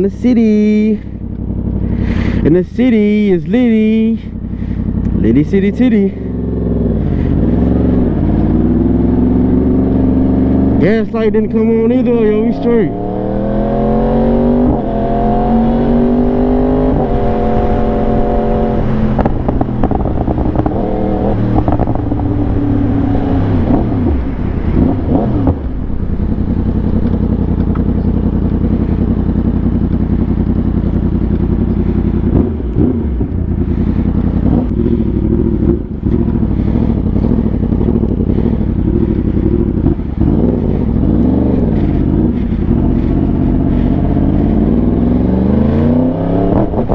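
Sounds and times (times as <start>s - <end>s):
motorcycle engine accelerating: 0.0s - 46.9s.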